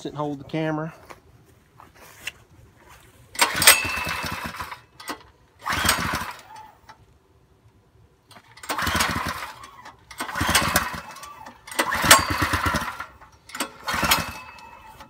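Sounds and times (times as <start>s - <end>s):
small engine pull-start cranking: 3.3s - 7.0s, 8.3s - 15.0s.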